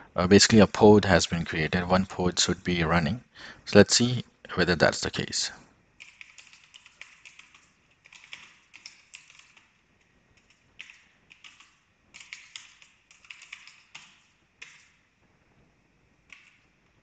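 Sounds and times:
faint keyboard typing: 4.4 - 17.0.

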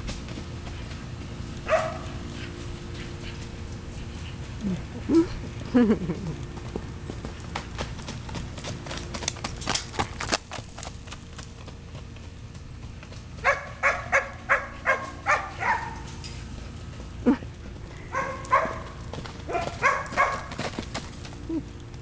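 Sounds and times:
horse hoofbeats cantering on dirt: 0.0 - 22.0
dog barking: 1.7 - 2.2, 13.4 - 16.1, 18.1 - 20.5.

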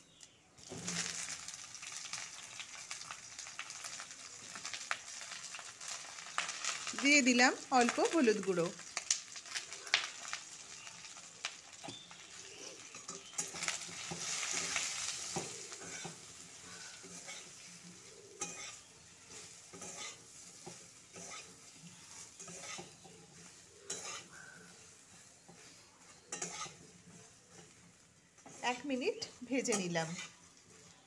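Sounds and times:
vegetables sizzling in oil: 0.0 - 31.0
spatula scraping pan: 11.8 - 31.0.

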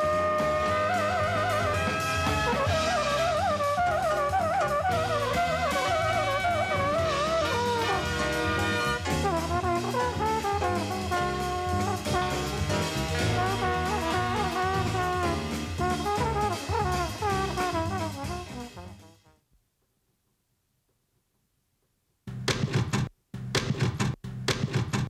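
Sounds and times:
instrumental soundtrack music: 0.0 - 19.4.

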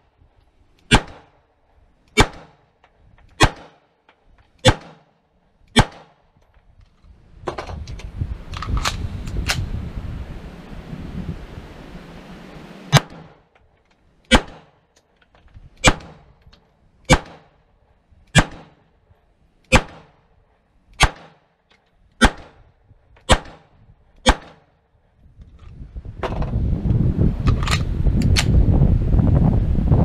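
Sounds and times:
pistol shots: 0.9 - 1.4, 2.1 - 2.6, 3.4 - 3.9, 4.6 - 5.1, 5.7 - 6.2, 12.9 - 13.4, 14.3 - 14.8, 17.1 - 17.6, 18.3 - 18.8, 19.7 - 20.2, 21.0 - 21.5, 22.2 - 22.6, 23.3 - 24.7.

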